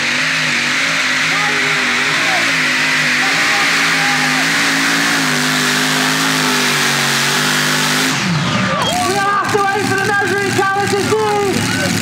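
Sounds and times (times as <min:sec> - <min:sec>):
tractor engine at high revs: 0:00.0 - 0:12.0.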